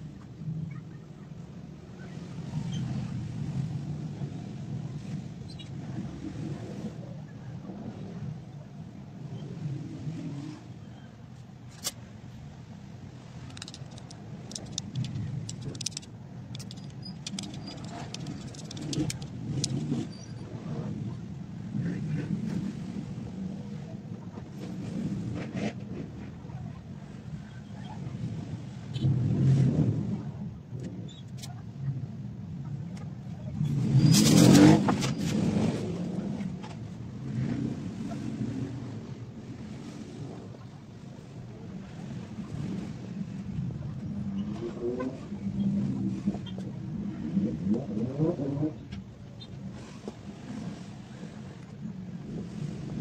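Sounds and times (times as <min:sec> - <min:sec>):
fingers handling cord and stone: 0:13.4 - 0:20.0.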